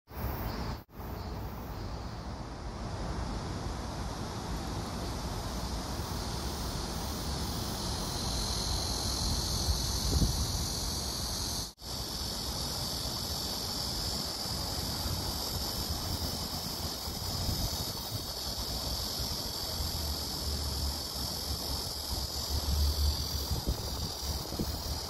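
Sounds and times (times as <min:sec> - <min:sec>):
high-pitched hiss: 0:00.1 - 0:25.0
wind rumbling on microphone: 0:02.9 - 0:11.6, 0:14.6 - 0:25.0.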